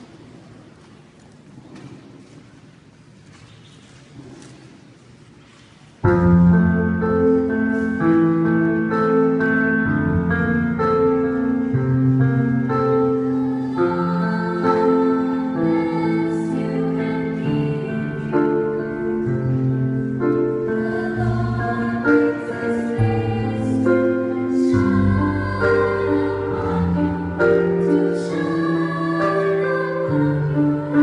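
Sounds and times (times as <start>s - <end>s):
choir singing a carol: 12.3s - 31.0s.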